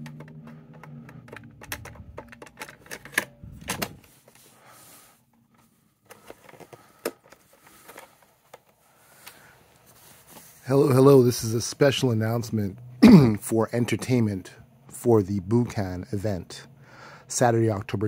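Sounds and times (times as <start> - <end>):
cassette clicking into recorder: 0.0 - 4.1.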